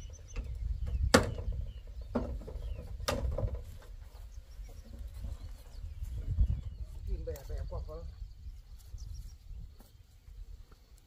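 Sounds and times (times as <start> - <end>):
faint bird chirps: 4.1 - 10.2.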